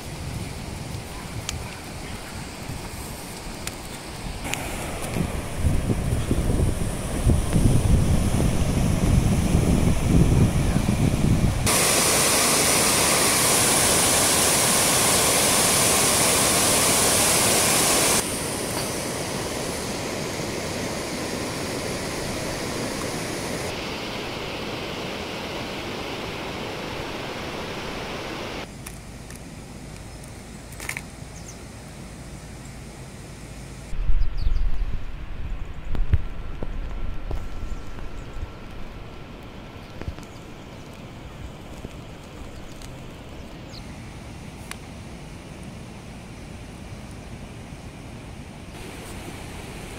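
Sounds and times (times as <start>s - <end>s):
wind rumbling on microphone: 0.0s - 15.0s, 33.9s - 45.5s
steady rushing hiss: 0.0s - 49.9s.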